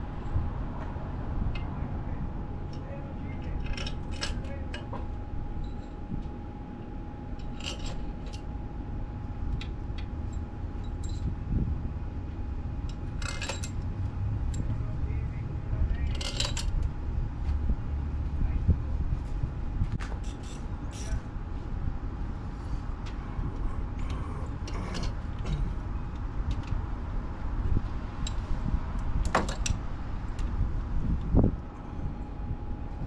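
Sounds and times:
steady low rumble: 0.0s - 33.0s
tools and metal parts clinking: 2.7s - 6.0s, 7.3s - 8.4s, 10.0s - 11.3s, 12.9s - 13.8s, 14.4s - 14.8s, 15.9s - 16.9s, 20.2s - 21.2s, 29.2s - 29.8s.

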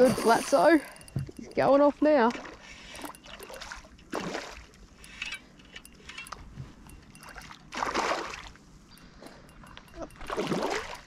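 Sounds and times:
fish thrashing in water: 2.3s - 4.8s, 7.3s - 8.6s, 10.2s - 11.0s.

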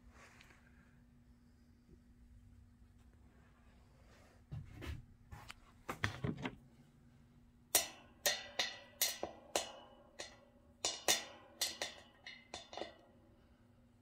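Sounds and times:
metal clinks and taps: 7.8s - 13.1s.

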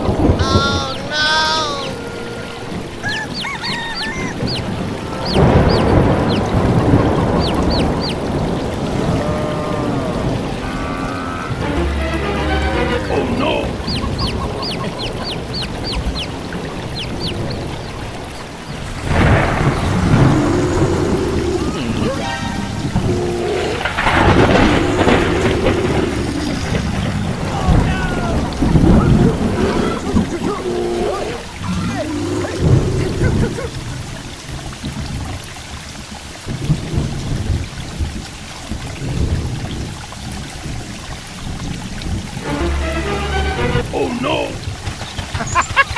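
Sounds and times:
thunder rumble: 0.0s - 35.4s
rain: 0.0s - 45.9s
high falling chirps: 3.0s - 6.5s.

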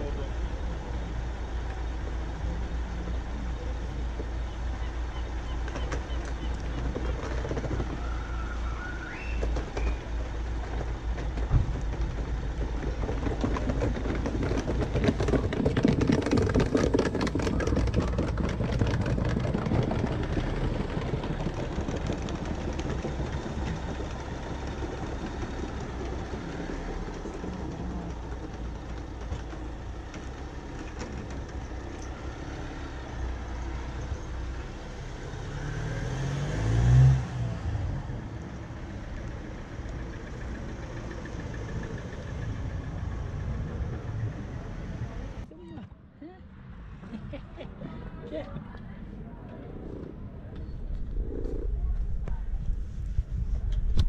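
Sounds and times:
cars passing: 31.6s - 52.0s.

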